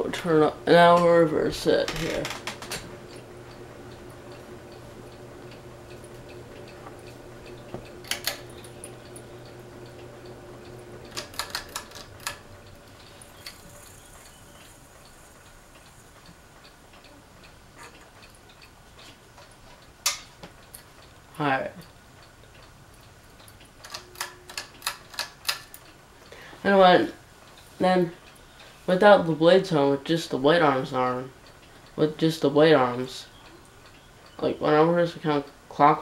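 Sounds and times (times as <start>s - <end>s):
ceiling fan motor humming: 0.0s - 36.0s
faint regular ticking: 0.0s - 36.0s
switch clicks: 1.9s - 13.6s.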